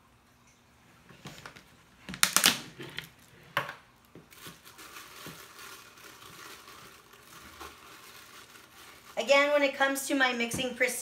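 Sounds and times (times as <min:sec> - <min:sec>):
powder scraping rustle: 0:04.3 - 0:10.1.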